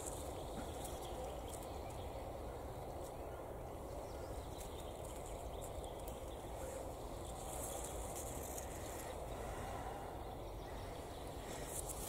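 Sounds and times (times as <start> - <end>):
dry leaves crackling: 0.0 - 2.0, 4.5 - 9.2
outdoor background noise: 0.0 - 12.0.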